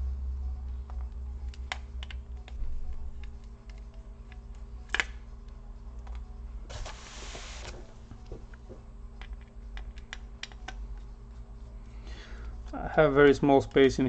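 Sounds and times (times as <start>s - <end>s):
low steady hum: 0.0s - 14.0s
rustling scrape: 6.7s - 7.9s
screwdriver and parts clicking: 9.2s - 11.1s.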